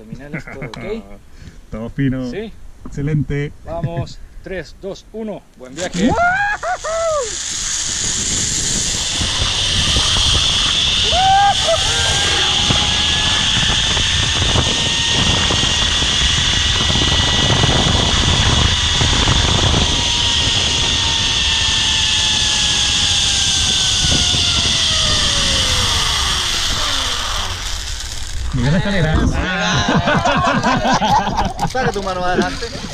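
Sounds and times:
loud rushing hiss: 0:05.8 - 0:29.1
zipline pulley whine: 0:05.8 - 0:32.9
wind rumbling on microphone: 0:07.2 - 0:31.7.

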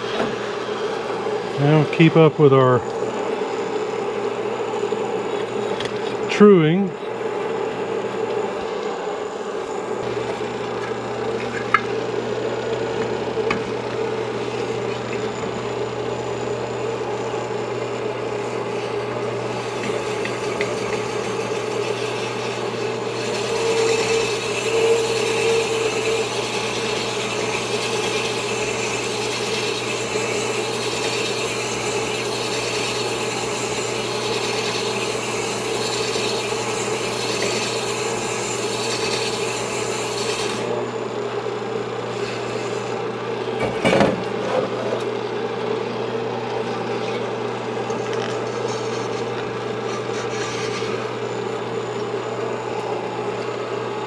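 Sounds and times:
abrasive stones rasping on metal: 0:19.6 - 0:40.6.

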